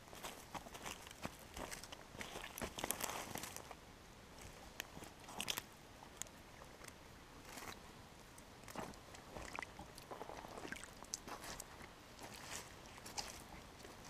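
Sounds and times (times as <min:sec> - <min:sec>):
footsteps on dry twigs: 0:00.0 - 0:03.8, 0:11.2 - 0:14.0.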